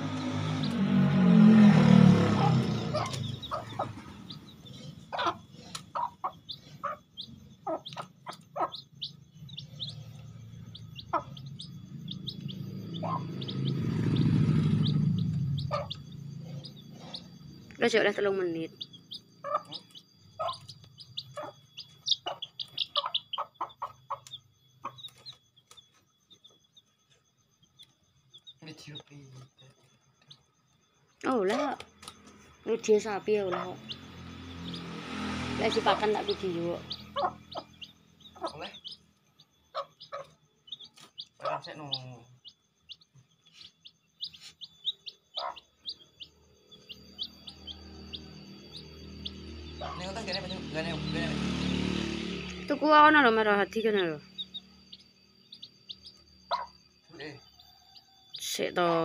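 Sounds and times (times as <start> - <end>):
hen clucking: 0.0 - 26.4, 31.2 - 59.0
lower bird call: 0.0 - 27.0, 33.6 - 58.9
chicks peeping: 0.0 - 59.0
low hum: 8.7 - 23.2.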